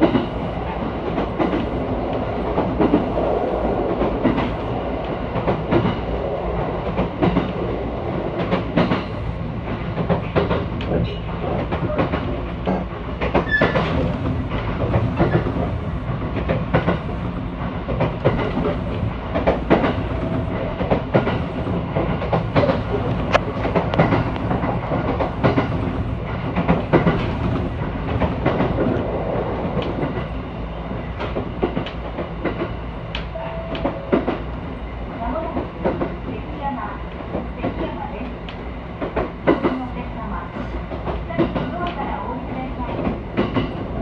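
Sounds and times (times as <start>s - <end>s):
train low rumble: 0.0s - 44.0s
wheels clacking over rails: 8.4s - 30.3s.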